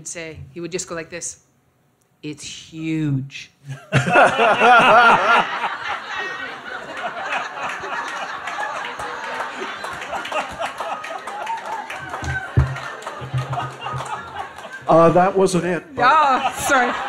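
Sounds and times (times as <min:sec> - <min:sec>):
man laughing into microphone: 0:03.7 - 0:11.2, 0:12.2 - 0:14.9
audience laughter: 0:03.9 - 0:15.5, 0:16.1 - 0:17.0.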